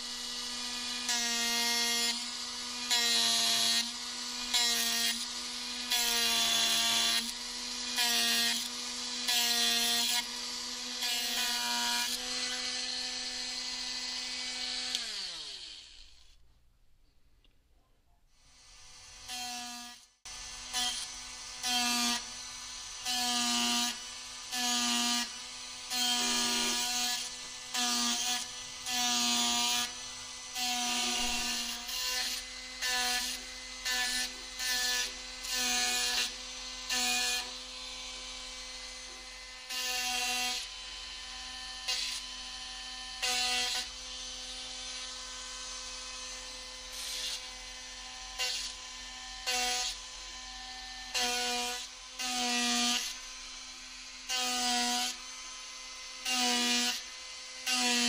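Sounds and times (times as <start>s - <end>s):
rotary power carver whining: 0.0s - 16.4s, 18.4s - 58.0s
bit grinding into wood: 25.9s - 27.3s, 30.9s - 32.4s.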